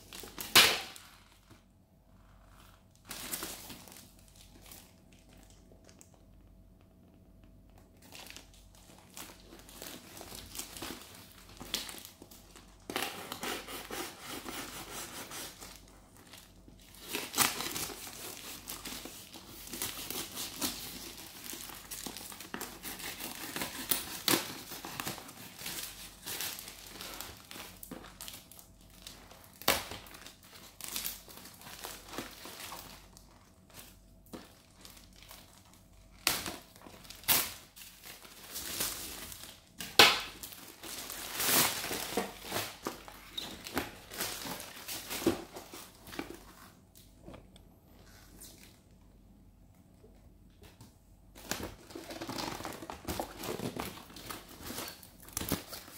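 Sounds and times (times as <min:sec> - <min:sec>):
plastic mailer bag crinkling: 0:07.8 - 0:12.9, 0:15.5 - 0:46.9.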